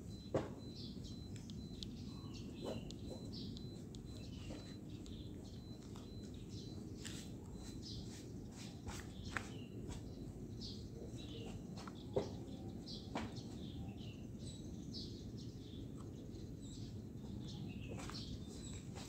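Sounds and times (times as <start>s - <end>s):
small birds chirping: 0.0s - 19.0s
sharp clicks: 0.2s - 6.2s.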